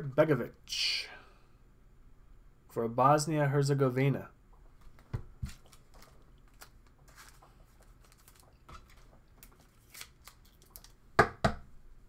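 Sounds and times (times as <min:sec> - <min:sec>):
trading cards rustling and clicking: 0:04.8 - 0:11.0.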